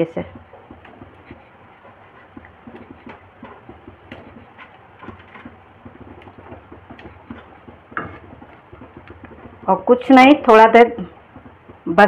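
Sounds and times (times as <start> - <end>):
curry gravy simmering: 0.0 - 12.0.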